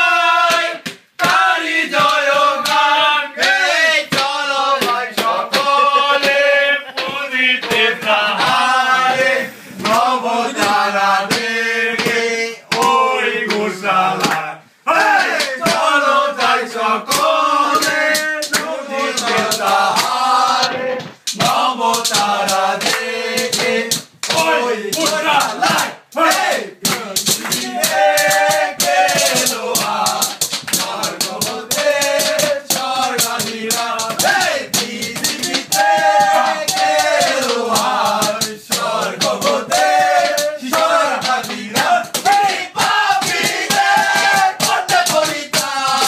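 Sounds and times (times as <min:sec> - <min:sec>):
sharp percussive hits: 0:00.0 - 0:13.6, 0:15.0 - 0:46.0
men singing a chant: 0:00.0 - 0:46.0.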